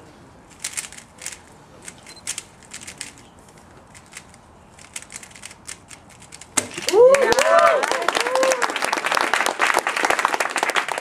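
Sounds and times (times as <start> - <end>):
plastic puzzle cube clicking: 0.5 - 3.3, 3.9 - 6.6.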